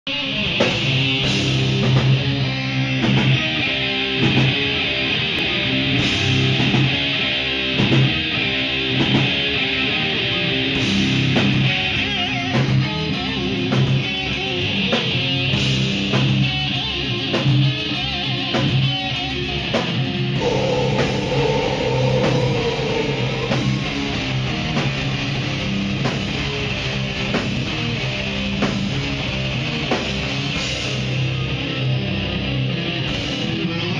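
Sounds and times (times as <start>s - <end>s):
held wavering guitar note: 20.4s - 25.6s
heavy metal band playing: 20.4s - 33.9s.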